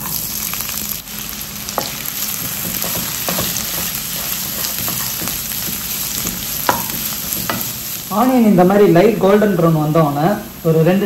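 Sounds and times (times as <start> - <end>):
onions sizzling in hot oil: 0.0 - 11.0
wooden spatula scraping pan: 1.8 - 7.8.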